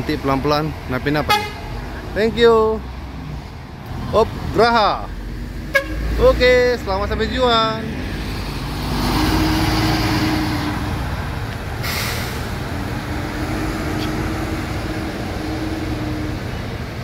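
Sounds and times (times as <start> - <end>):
bus engine driving past: 1.5 - 17.0
air hiss: 11.8 - 12.6.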